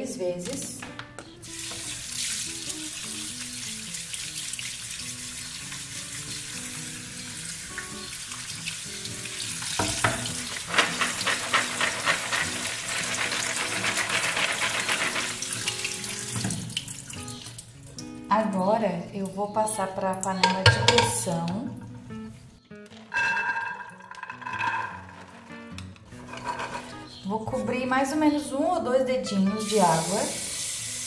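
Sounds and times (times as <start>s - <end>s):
tap water splashing in a colander: 1.5s - 18.1s.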